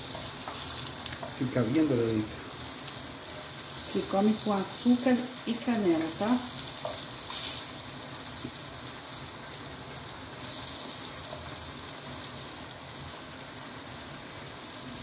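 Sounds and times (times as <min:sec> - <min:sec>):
plantain sizzling in butter: 0:00.0 - 0:15.0.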